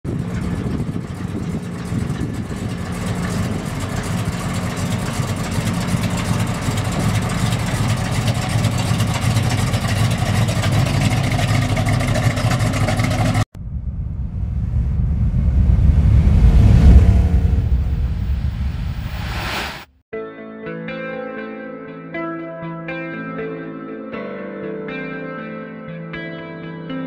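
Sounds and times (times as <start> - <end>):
car engine idling: 0.1 - 19.1.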